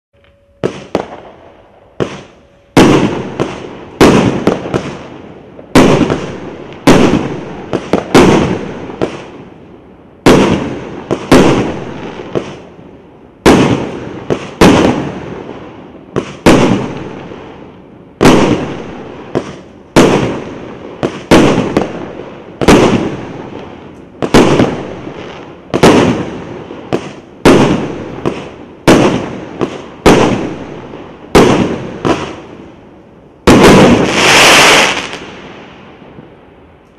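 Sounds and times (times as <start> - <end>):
fireworks bangs: 0.5 - 32.8, 33.4 - 36.9.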